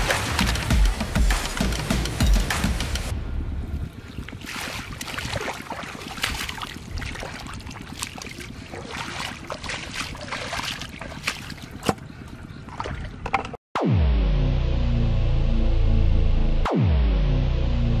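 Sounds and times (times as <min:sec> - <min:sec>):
splashing in shallow water: 0:04.0 - 0:13.2.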